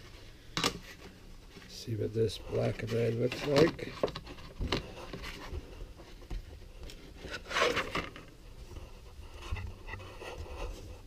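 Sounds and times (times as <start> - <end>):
sheets scraping and rubbing: 0.0 - 11.0.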